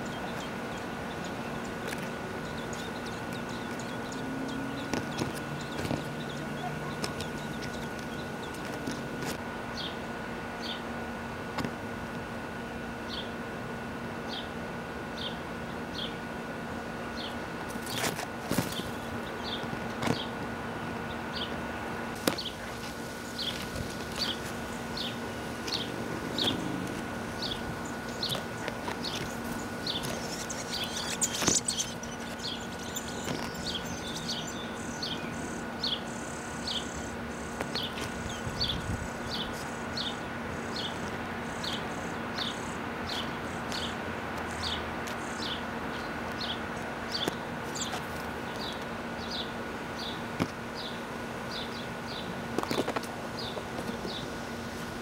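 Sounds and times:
bird chirping: 0.0s - 8.7s, 22.4s - 48.0s
steady hum: 0.0s - 55.0s.

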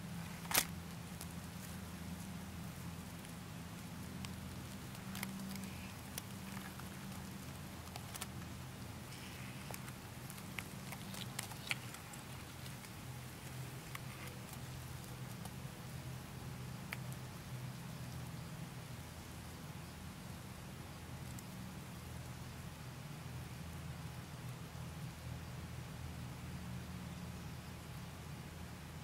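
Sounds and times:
dry grass crackling: 0.0s - 18.5s
low steady hum: 0.0s - 29.0s.

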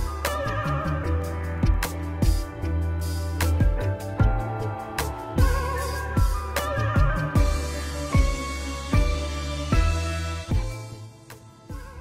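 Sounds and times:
held bass notes: 0.0s - 12.0s
wavering melody line: 2.7s - 12.0s.

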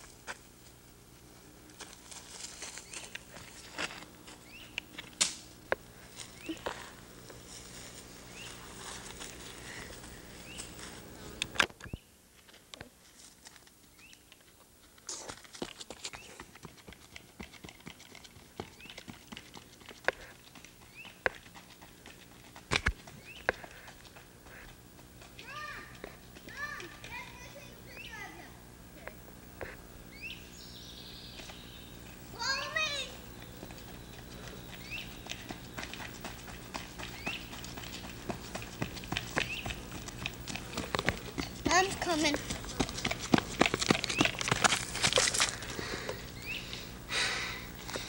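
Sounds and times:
footsteps on twigs and leaves: 0.0s - 11.6s, 31.2s - 46.7s
bird chirping: 30.1s - 32.1s, 33.4s - 35.9s, 39.4s - 39.8s, 46.4s - 46.8s.

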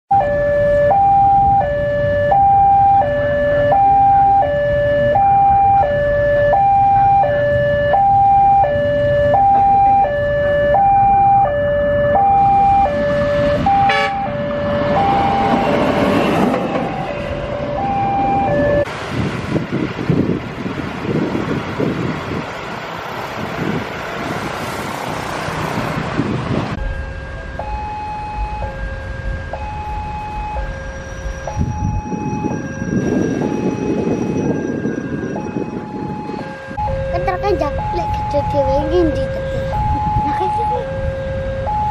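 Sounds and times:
level-crossing two-tone alarm: 0.1s - 18.9s, 26.8s - 41.9s
rushing noise: 12.4s - 38.3s.

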